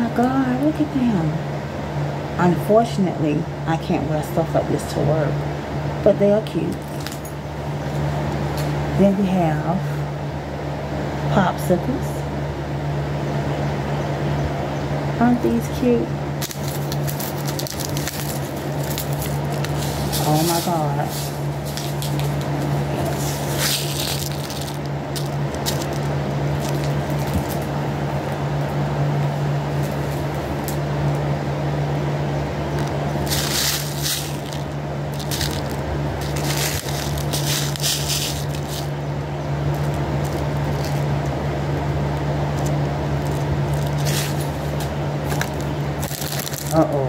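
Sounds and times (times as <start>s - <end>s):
fan running: 0.0s - 47.0s
plastic packaging crinkling: 16.4s - 27.7s, 32.8s - 39.0s, 39.7s - 41.3s, 42.5s - 47.0s.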